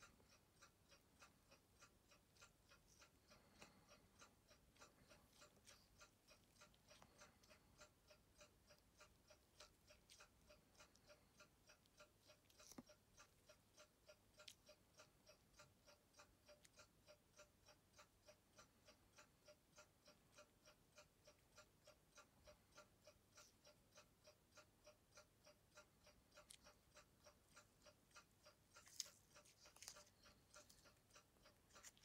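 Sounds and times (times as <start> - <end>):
clock ticking: 0.0 - 32.0.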